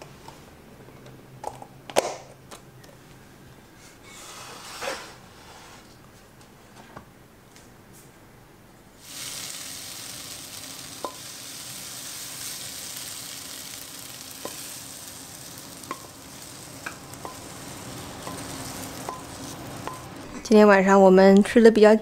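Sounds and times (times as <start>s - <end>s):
food sizzling in a pan: 9.0s - 20.4s.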